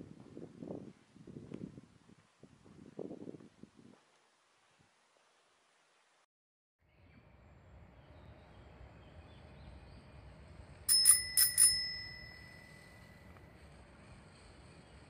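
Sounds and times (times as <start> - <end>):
bicycle bell ringing: 10.9 - 13.3.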